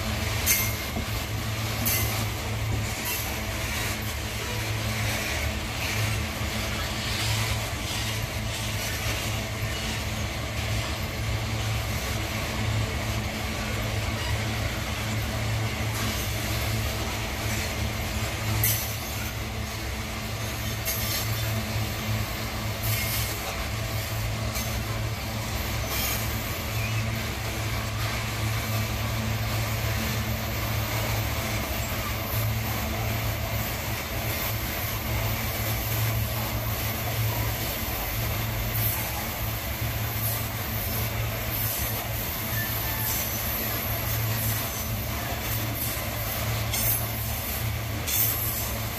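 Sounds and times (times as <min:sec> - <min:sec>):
diesel locomotive engine hum: 0:00.0 - 0:48.9
freight train rolling: 0:00.0 - 0:48.9
high-pitched wheel squeals: 0:42.4 - 0:43.7.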